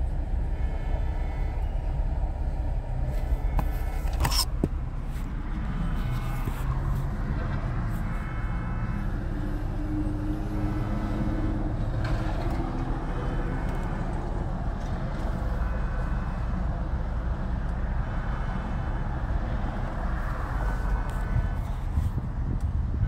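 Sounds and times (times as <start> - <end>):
car cabin rumble: 1.3 - 8.4
faint distant horn toots: 7.7 - 10.4.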